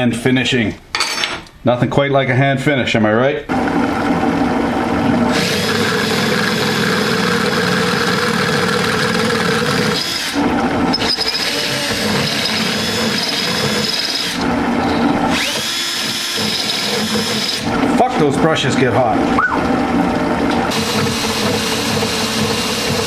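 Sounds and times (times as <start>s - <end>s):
rotary tool high whine: 5.3s - 17.9s.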